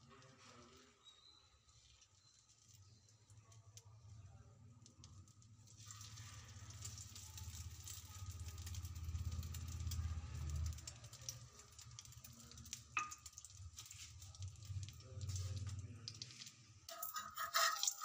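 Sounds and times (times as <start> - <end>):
food sizzling and crackling: 5.6 - 18.0.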